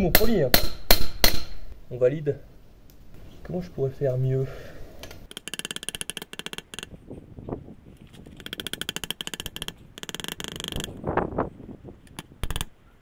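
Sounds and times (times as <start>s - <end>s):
hammer beating hot metal: 0.0s - 1.7s.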